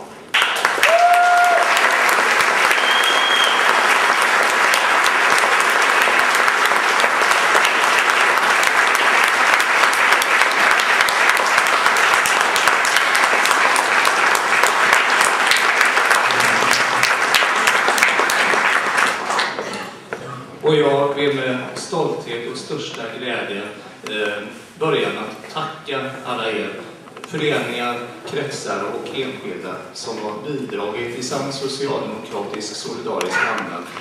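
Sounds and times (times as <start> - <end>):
audience applauding: 0.3 - 19.8.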